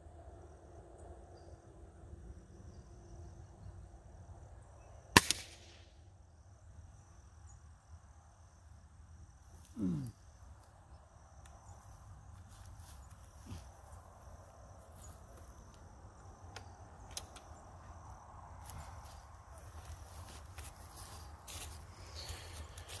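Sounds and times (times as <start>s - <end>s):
air rifle shot: 5.2s - 5.9s.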